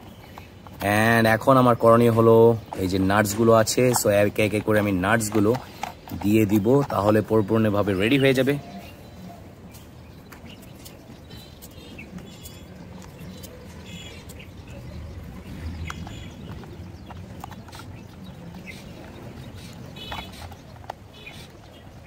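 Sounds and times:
bird chirps: 0:00.0 - 0:22.0
low outdoor rumble: 0:11.1 - 0:22.0.

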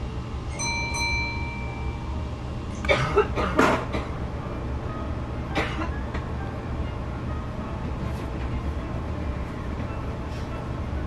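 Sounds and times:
low hum in train cab: 0:00.0 - 0:11.0
bell-like chime: 0:00.5 - 0:02.2.

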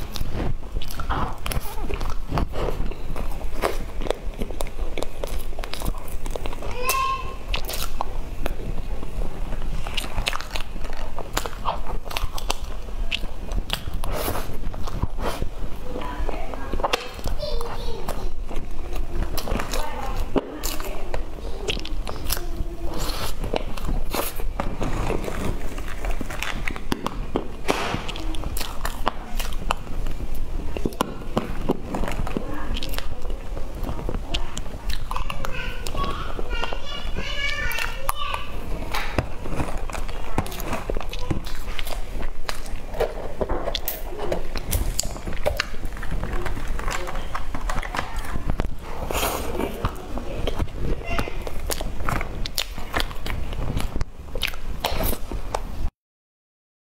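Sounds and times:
wet mouth clicks and smacks: 0:07.5 - 0:08.6, 0:09.8 - 0:15.5, 0:25.4 - 0:35.2, 0:38.9 - 0:55.7.

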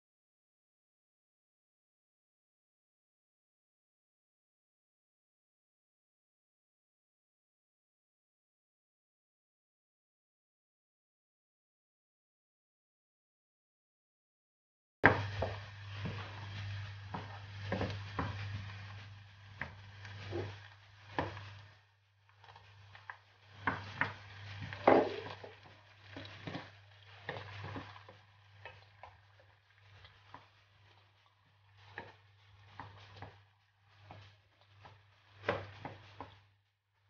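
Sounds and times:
wooden spoon knocking on pan: 0:15.0 - 0:21.8, 0:22.8 - 0:29.4, 0:31.8 - 0:36.4
onions sizzling in oil: 0:15.0 - 0:36.5.

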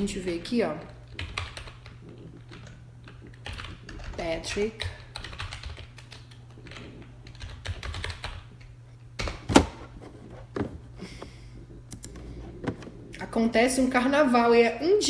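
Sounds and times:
keyboard typing: 0:01.1 - 0:08.7.

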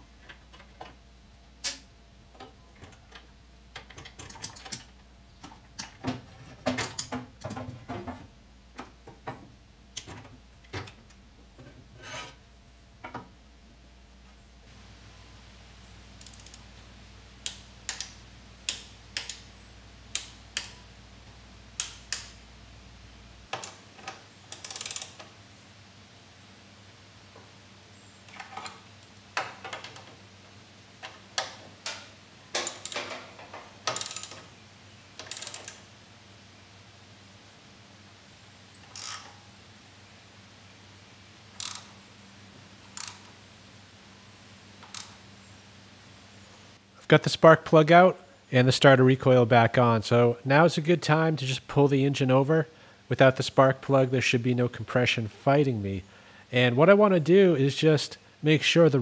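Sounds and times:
socket ratchet clicking: 0:16.2 - 0:16.6, 0:21.8 - 0:22.4, 0:24.5 - 0:25.2, 0:32.6 - 0:33.2, 0:33.8 - 0:34.5, 0:35.2 - 0:35.9, 0:38.8 - 0:39.3, 0:41.6 - 0:42.0, 0:42.9 - 0:43.3.

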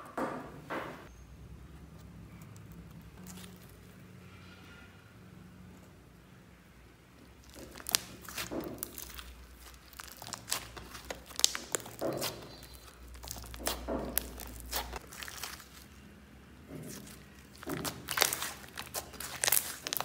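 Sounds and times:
slime squelching: 0:01.8 - 0:04.2, 0:07.1 - 0:20.0
slime crackling and clicking: 0:07.4 - 0:16.0, 0:16.9 - 0:20.0.

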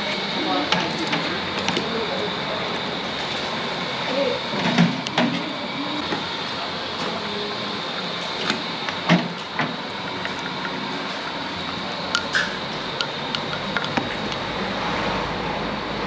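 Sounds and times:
kitchen utensils clinking: 0:10.0 - 0:14.5
spoon stirring in metal cup: 0:10.0 - 0:14.6.

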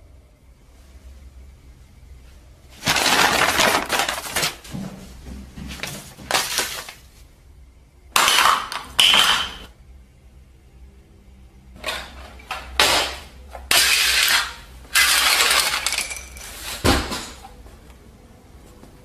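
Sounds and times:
objects crashing and clattering: 0:02.8 - 0:04.8, 0:11.8 - 0:17.4.

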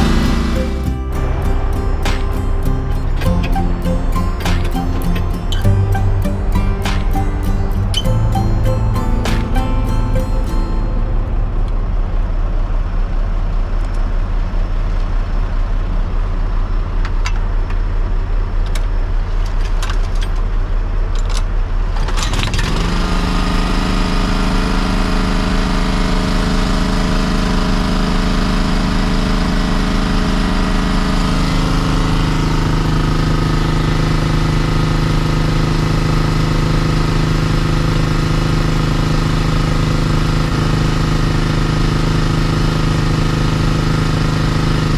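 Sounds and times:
small engine running: 0:00.0 - 0:11.0, 0:22.1 - 0:44.9.

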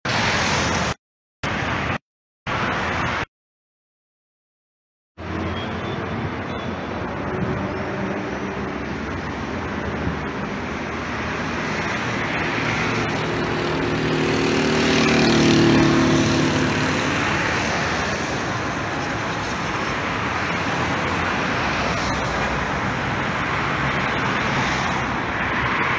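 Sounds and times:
road traffic noise: 0:00.0 - 0:03.3, 0:05.2 - 0:25.9
vehicle engine passing close: 0:11.4 - 0:18.7.

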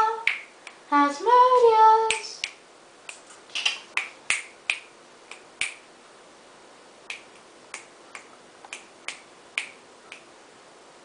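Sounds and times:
sharp short clicks: 0:02.1 - 0:05.8.

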